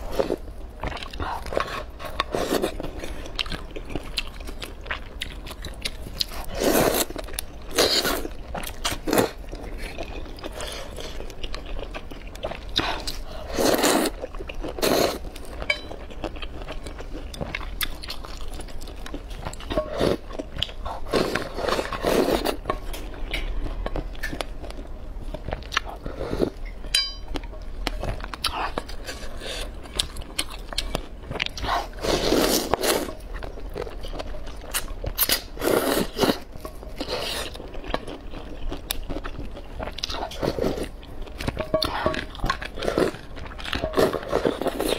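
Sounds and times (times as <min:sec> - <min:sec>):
slurping noodles: 0:21.0 - 0:22.6, 0:31.6 - 0:33.1, 0:35.6 - 0:36.4.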